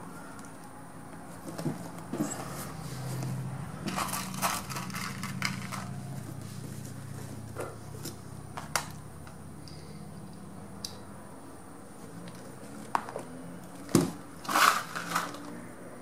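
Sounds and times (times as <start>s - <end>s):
vinyl crinkling and scraping: 0.3s - 8.3s.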